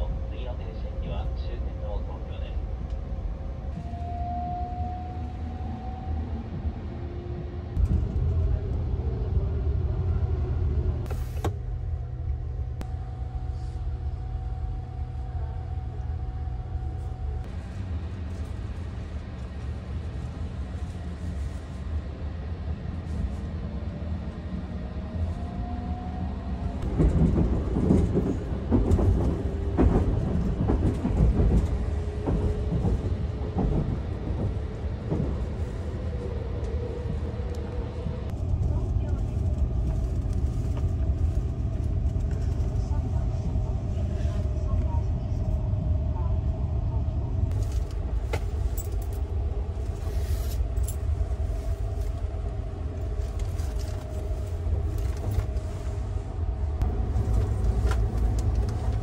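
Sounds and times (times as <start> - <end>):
train wheels rumbling on rails: 0.0 - 59.0.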